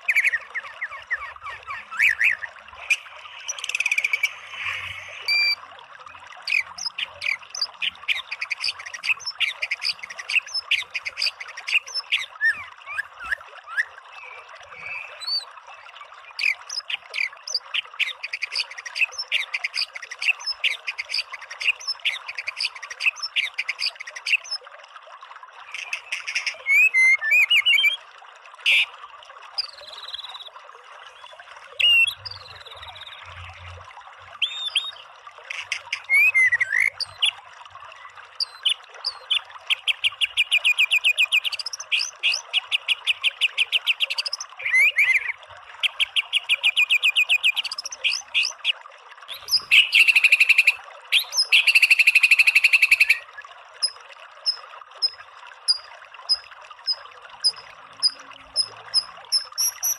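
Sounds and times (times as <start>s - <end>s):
songbird singing repeated notes: 0.0s - 5.6s, 6.4s - 15.5s, 31.2s - 33.8s, 34.4s - 37.4s, 38.4s - 59.9s.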